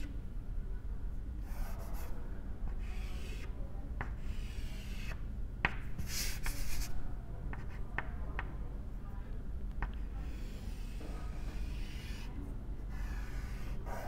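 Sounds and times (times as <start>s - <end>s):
chalk scratching on blackboard: 2.7s - 5.2s, 6.0s - 7.0s, 10.0s - 14.0s
chalk tapping on blackboard: 2.9s - 6.9s, 7.5s - 8.5s, 9.8s - 12.3s.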